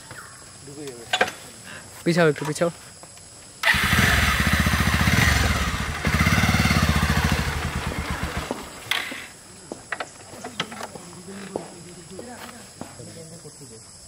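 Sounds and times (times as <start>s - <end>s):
motorcycle engine running: 3.7s - 8.9s.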